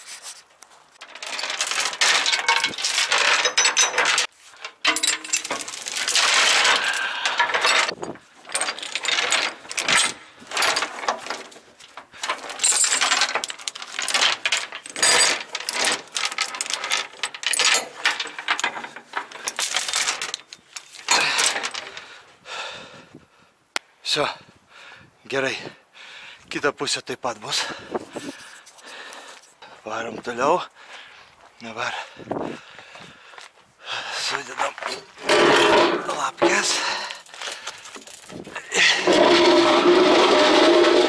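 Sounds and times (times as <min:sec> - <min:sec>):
steel chains rattling and clanking: 0:01.0 - 0:22.1, 0:34.3 - 0:41.0.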